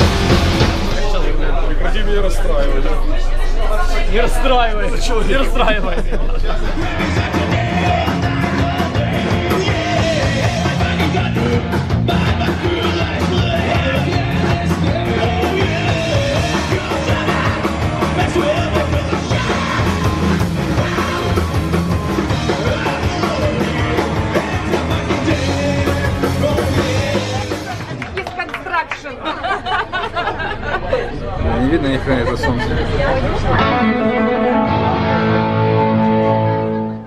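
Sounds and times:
distorted electric guitars: 0:00.0 - 0:28.1, 0:33.3 - 0:37.0
drum kit fast beat: 0:00.0 - 0:28.2
man singing: 0:02.8 - 0:27.8, 0:33.5 - 0:35.9.

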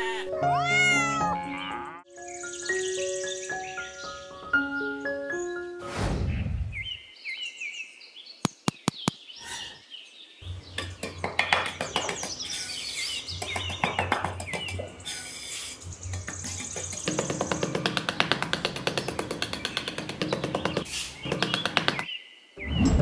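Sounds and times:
birds chirping: 0:01.3 - 0:23.0
trowel tapping: 0:10.8 - 0:12.4, 0:13.4 - 0:14.8, 0:16.2 - 0:22.1.

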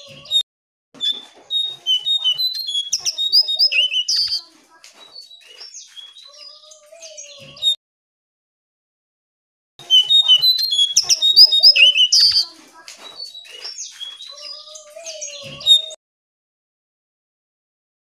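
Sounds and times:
songbird chirps and warbles: 0:01.0 - 0:07.8, 0:09.8 - 0:16.0.

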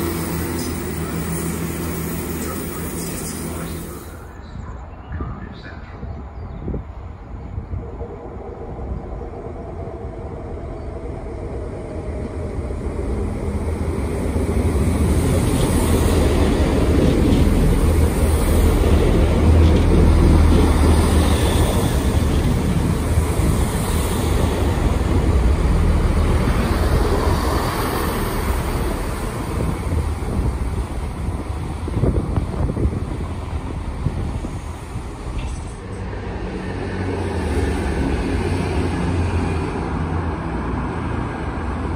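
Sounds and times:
diesel train rumbling: 0:00.0 - 0:41.9.

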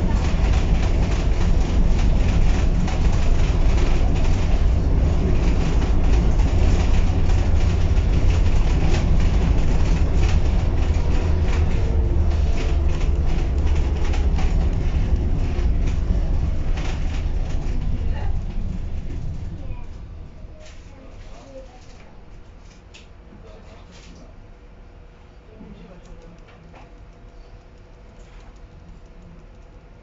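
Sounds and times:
tram wheels rumbling: 0:00.0 - 0:22.8.

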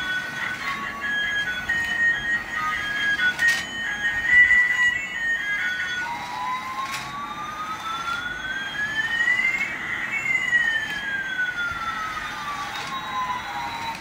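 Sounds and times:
fainter gliding electronic tone: 0:00.0 - 0:14.0
toy siren tone rising and falling: 0:00.0 - 0:14.0.

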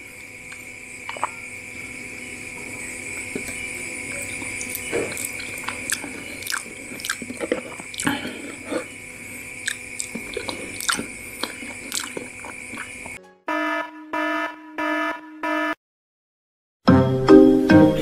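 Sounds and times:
chewing: 0:00.5 - 0:01.5, 0:02.5 - 0:09.0, 0:09.6 - 0:13.2
electronic jingle of beeping tones: 0:13.5 - 0:15.8.

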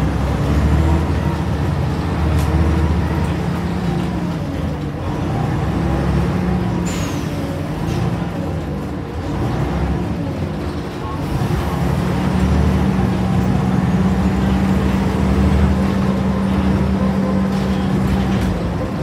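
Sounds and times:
diesel bus engine running: 0:00.0 - 0:19.0.

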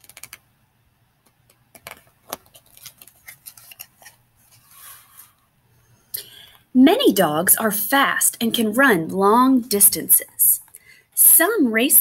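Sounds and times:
book pages turning: 0:00.0 - 0:00.4, 0:01.2 - 0:05.4.

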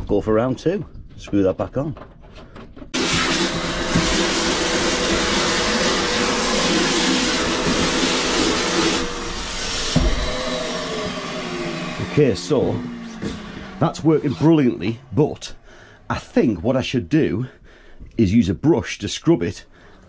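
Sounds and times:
wet vacuum hiss and hum: 0:03.0 - 0:14.7
knock: 0:09.9 - 0:10.3.

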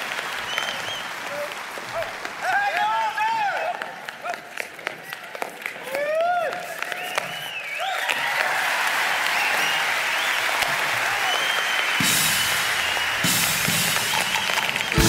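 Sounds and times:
audience applauding and cheering: 0:00.0 - 0:15.0
whoops: 0:05.8 - 0:10.0
long held whistle: 0:06.9 - 0:08.1, 0:11.2 - 0:13.5.

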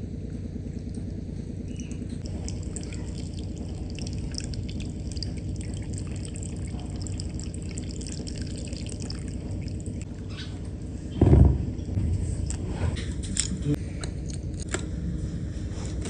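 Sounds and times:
small drips: 0:02.2 - 0:11.2
water running: 0:02.2 - 0:13.2.

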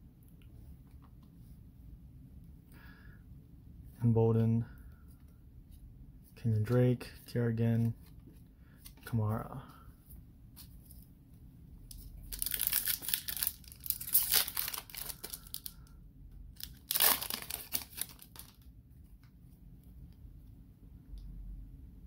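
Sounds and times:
foil wrapper tearing and crinkling: 0:12.3 - 0:15.8, 0:16.6 - 0:18.6.

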